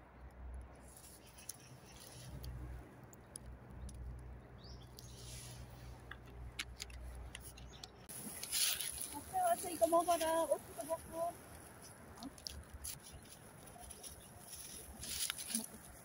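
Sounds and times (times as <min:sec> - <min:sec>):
low road rumble: 0:00.0 - 0:16.0
rustle: 0:00.8 - 0:02.8, 0:08.0 - 0:16.0.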